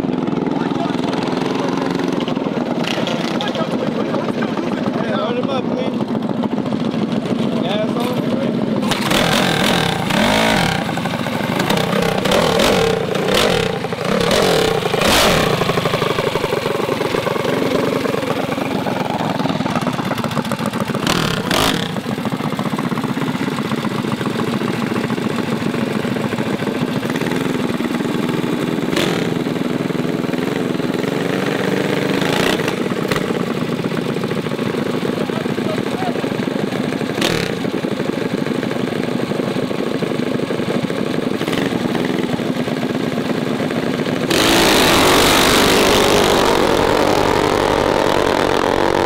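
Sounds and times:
minibike engines revving: 0.0 - 38.3, 41.3 - 49.0.

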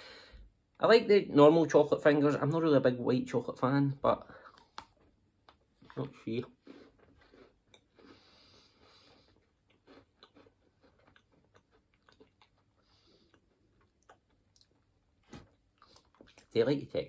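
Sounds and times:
soft chewing crunches: 4.2 - 16.8.

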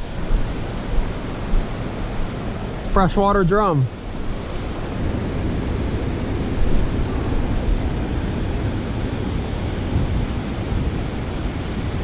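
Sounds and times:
wind buffeting microphone: 0.0 - 3.0, 3.9 - 12.0
water rushing and churning: 0.0 - 12.0.

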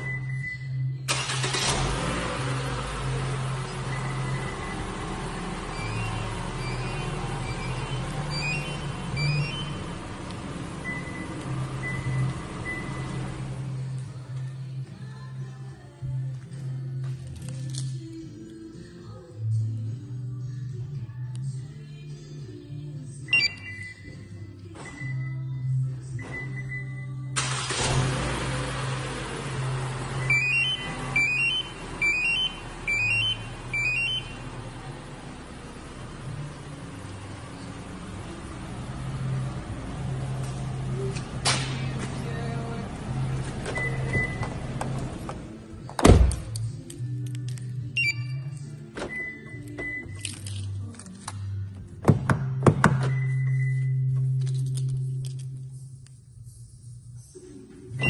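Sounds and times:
car engine idling: 1.1 - 14.1, 27.4 - 46.6
remote fob beep tune: 23.3 - 24.1, 30.2 - 34.4, 48.0 - 48.5.

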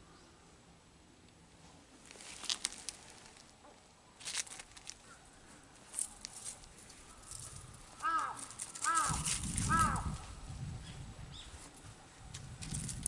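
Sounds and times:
fur scraping on asphalt: 1.6 - 3.5.

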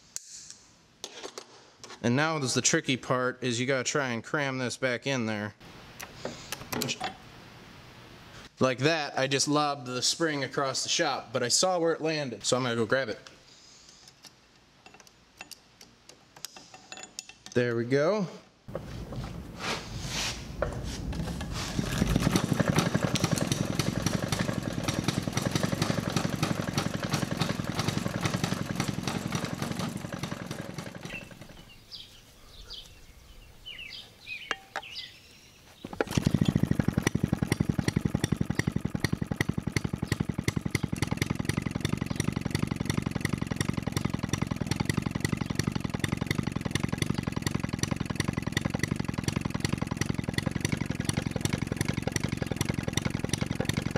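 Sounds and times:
rope pull: 18.7 - 31.6, 35.8 - 53.9
engine firing rapidly: 21.1 - 31.6, 35.9 - 53.9.

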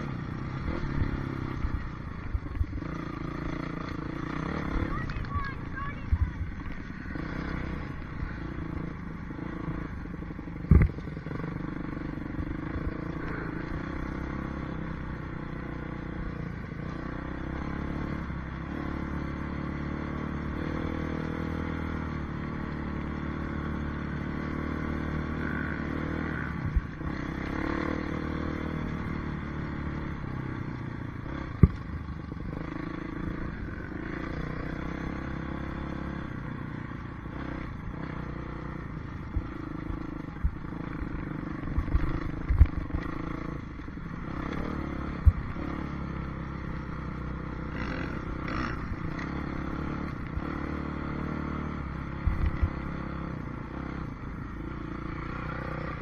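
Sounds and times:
motocross bike engine running: 0.0 - 56.0.

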